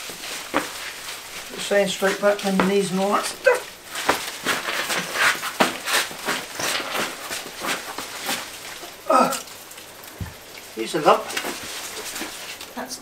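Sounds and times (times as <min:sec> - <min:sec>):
footsteps on tiles: 0:00.0 - 0:08.5
leaves rustling: 0:00.0 - 0:13.0.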